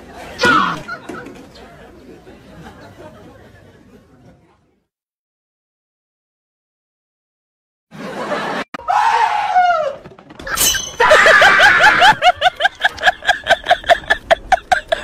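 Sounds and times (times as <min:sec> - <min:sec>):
cry falling in pitch: 0:08.8 - 0:10.0
high-pitched laughter: 0:10.9 - 0:15.0.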